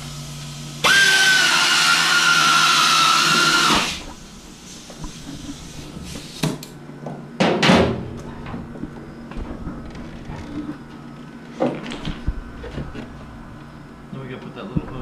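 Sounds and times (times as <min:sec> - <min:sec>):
power tool whining: 0:00.8 - 0:04.2.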